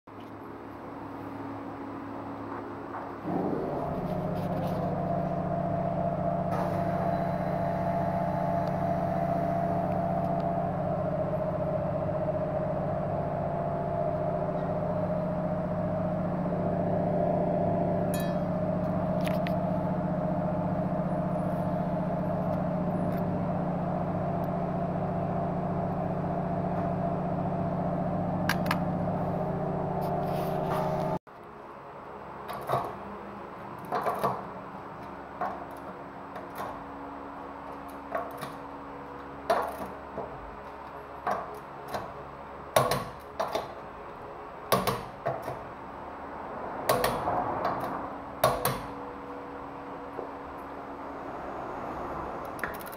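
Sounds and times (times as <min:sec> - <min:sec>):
machine hum: 0:00.4 - 0:44.7, 0:45.3 - 0:52.9.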